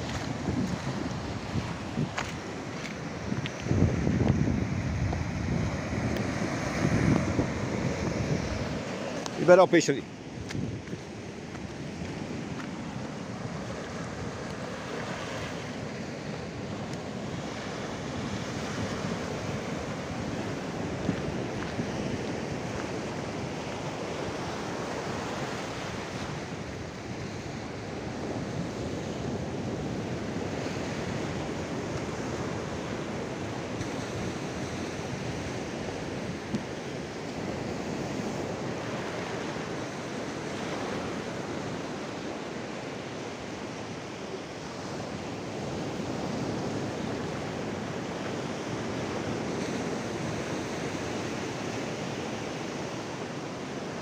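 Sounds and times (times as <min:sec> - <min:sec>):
surf breaking on rocks: 0:00.0 - 0:15.7
wind on microphone: 0:00.0 - 0:42.8.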